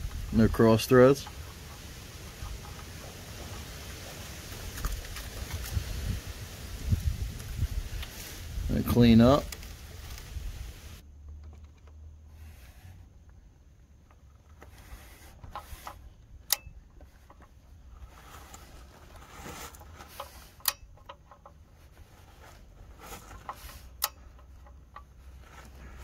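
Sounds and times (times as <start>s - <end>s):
torque wrench clicking: 20.2s - 21.4s, 23.7s - 25.1s.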